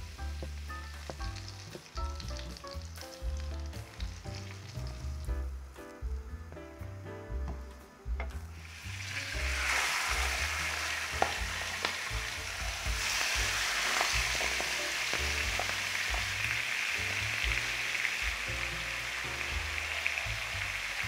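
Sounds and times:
food sizzling in frying pan: 0.0 - 5.4, 8.2 - 21.0
utensil clicking against pan: 11.2 - 12.0.

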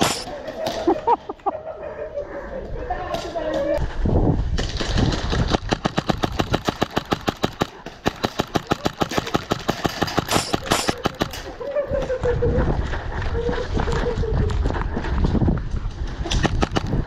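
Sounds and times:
airsoft rifle rapid fire: 4.9 - 11.5.

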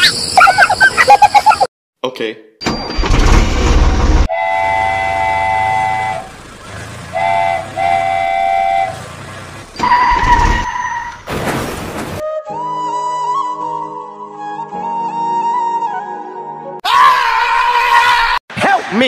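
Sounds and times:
low fast train rumble: 3.5 - 10.4
steam train whistle blasts: 4.3 - 6.3, 7.1 - 9.0.

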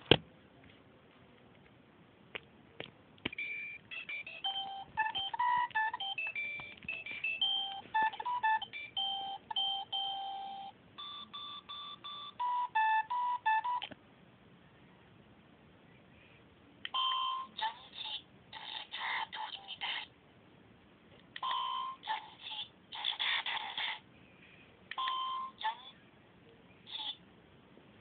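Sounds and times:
beeping electronic tune: 3.4 - 13.8.

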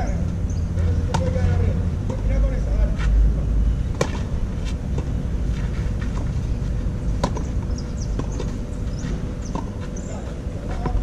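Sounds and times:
tennis balls struck by rackets: 0.8 - 2.4, 3.9 - 11.0.

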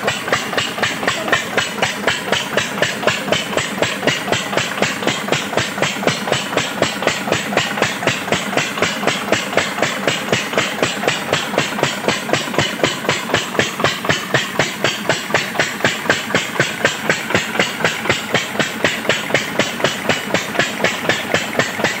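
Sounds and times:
stationary diesel engine running: 0.0 - 22.0.

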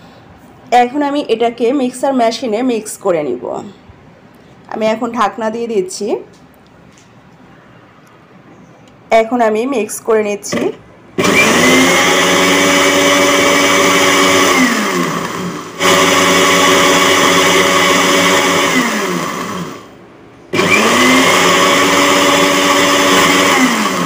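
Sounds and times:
blender motor whining: 10.5 - 19.9, 20.5 - 24.0.

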